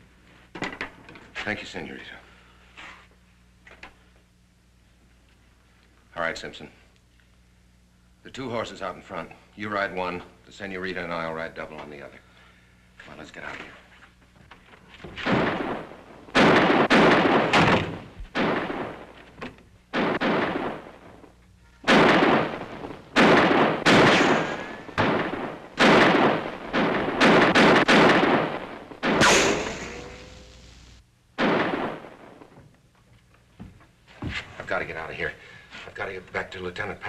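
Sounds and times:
revolver shots echoing: 0:21.9 - 0:30.5.

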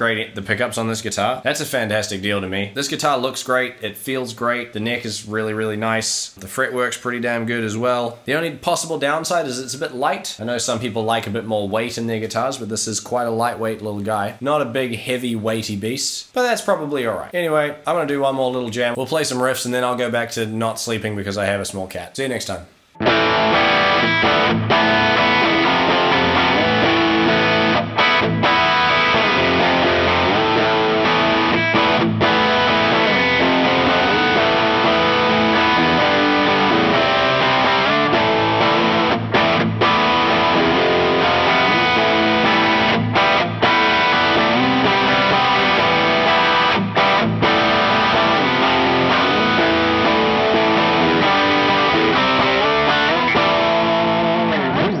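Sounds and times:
distorted electric guitar riffs: 0:22.9 - 0:55.0.

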